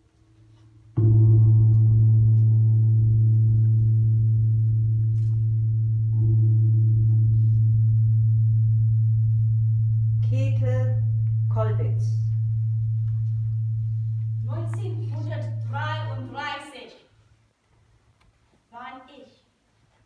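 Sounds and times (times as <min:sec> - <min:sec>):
deep ringing metallic strike: 0:00.9 - 0:16.3.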